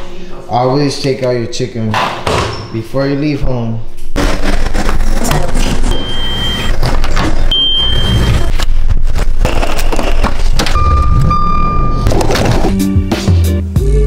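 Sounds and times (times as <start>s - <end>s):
steady electronic beep: 5.9s - 6.8s, 7.4s - 8.6s, 9.5s - 12.4s.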